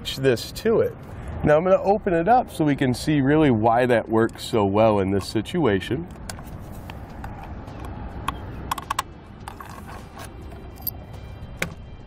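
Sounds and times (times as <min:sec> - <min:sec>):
steady low rumble: 0:00.0 - 0:12.0
roof rack clamp clicking: 0:07.3 - 0:10.9.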